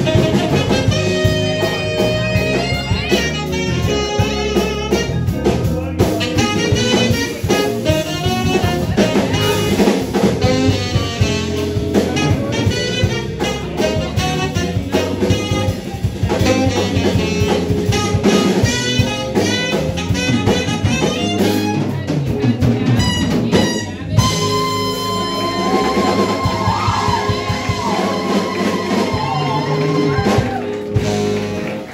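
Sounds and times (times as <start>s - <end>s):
saxophone playing lead lines: 0.0s - 22.1s, 22.9s - 31.9s
drum kit: 0.0s - 31.9s
electric guitar: 22.9s - 31.9s.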